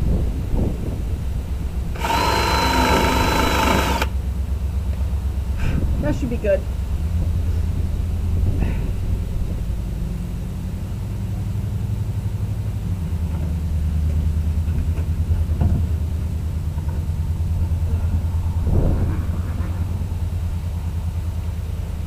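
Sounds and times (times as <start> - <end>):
engine idling: 1.6 - 5.6.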